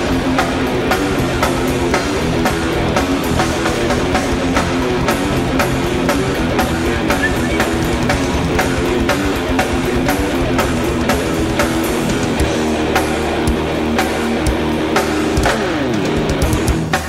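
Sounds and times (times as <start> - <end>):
thrash metal band playing: 0.0 - 17.0.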